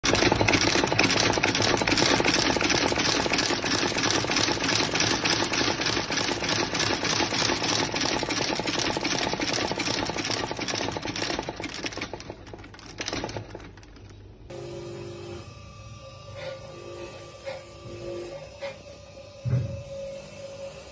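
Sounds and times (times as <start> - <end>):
stitching machine clattering: 0.0 - 14.2.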